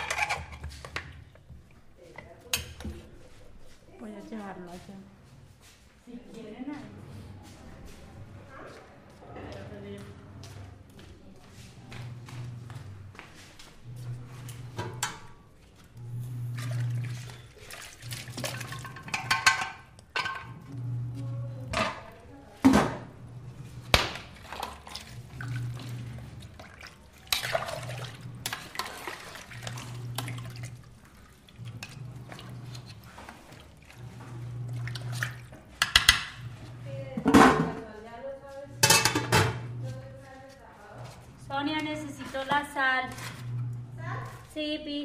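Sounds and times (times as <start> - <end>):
dishes and utensils clinking: 0.0 - 1.0, 18.4 - 20.6, 38.8 - 39.7
water running: 16.0 - 22.2, 23.0 - 37.2.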